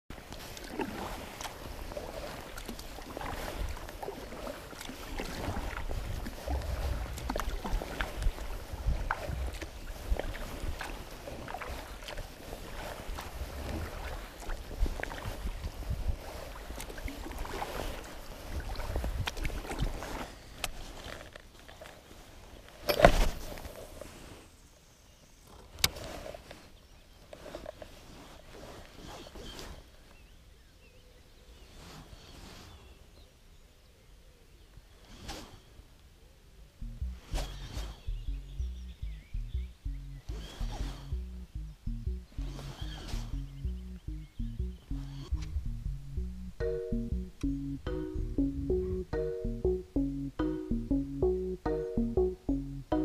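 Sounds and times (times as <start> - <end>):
water drips and small splashes: 0.1 - 22.3
kayak paddle strokes in water: 0.1 - 24.4
low rumble: 36.8 - 53.0.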